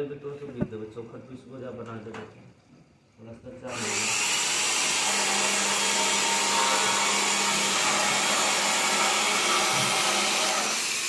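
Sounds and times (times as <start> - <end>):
cordless drill drilling into metal: 3.7 - 11.0.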